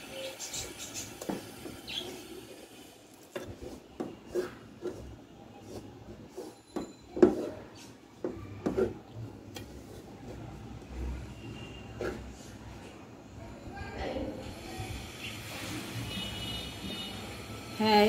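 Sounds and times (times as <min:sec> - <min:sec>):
wooden spatula scraping metal pot: 0:03.2 - 0:12.7.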